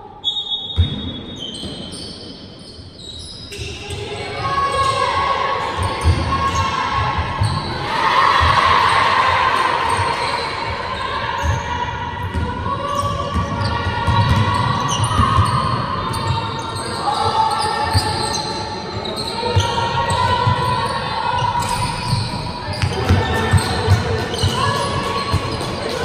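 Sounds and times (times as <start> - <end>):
shoes squeaking on court: 0.3 - 5.0, 12.4 - 26.0
players' voices: 3.5 - 26.0
basketball bouncing: 22.0 - 26.0.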